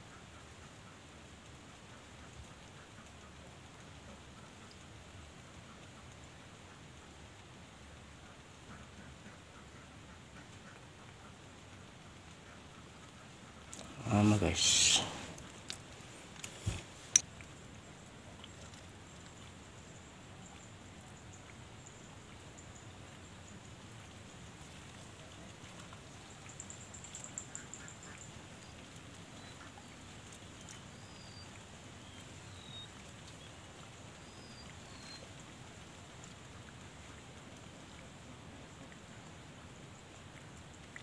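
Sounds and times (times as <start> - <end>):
steady low hiss: 0.0 - 41.0
faint bird chirps: 26.1 - 35.3.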